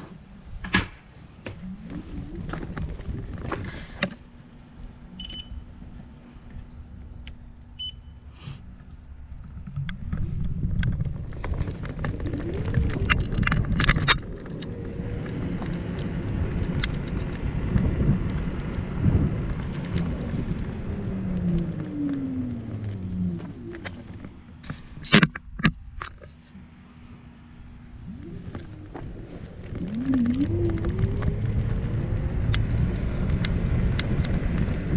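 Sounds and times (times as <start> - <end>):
low whine: 0.0 - 34.9
wind and road rumble: 0.0 - 34.9
short electronic beep: 5.2 - 5.6, 7.8 - 8.3.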